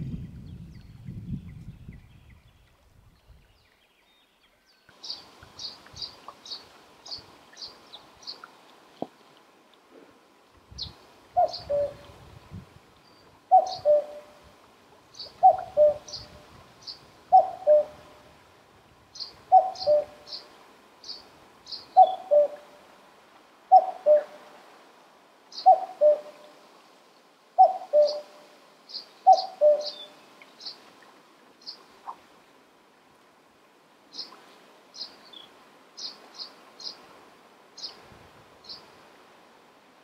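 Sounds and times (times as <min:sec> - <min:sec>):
cuckoo calling: 0:11.4 - 0:12.1, 0:13.5 - 0:14.4, 0:15.2 - 0:16.3, 0:17.3 - 0:18.1, 0:19.5 - 0:20.4, 0:21.7 - 0:22.7, 0:23.7 - 0:24.4, 0:25.6 - 0:26.5, 0:27.6 - 0:30.2.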